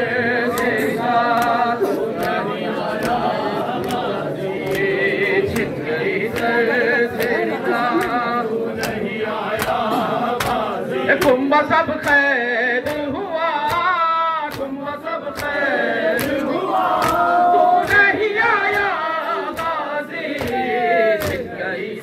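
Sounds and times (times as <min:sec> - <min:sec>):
mourners chanting together: 0:00.0 - 0:22.0
chest-beating slaps: 0:08.8 - 0:11.4.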